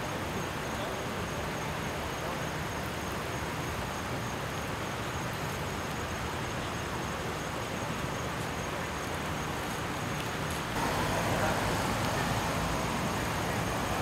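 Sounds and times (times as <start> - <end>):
road traffic hum: 8.7 - 14.0.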